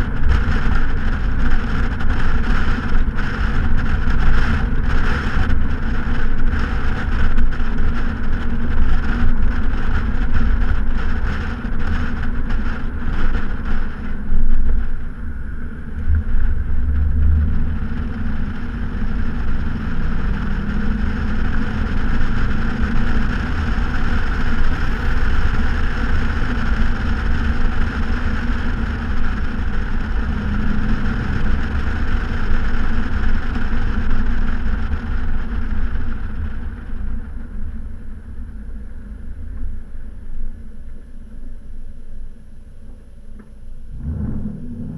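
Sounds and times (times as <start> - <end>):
car exhaust droning: 0.0 - 44.9.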